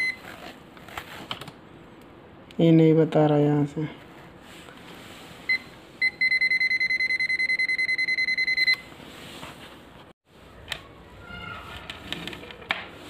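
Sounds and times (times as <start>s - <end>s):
voltage tester beeping: 5.5s - 8.9s.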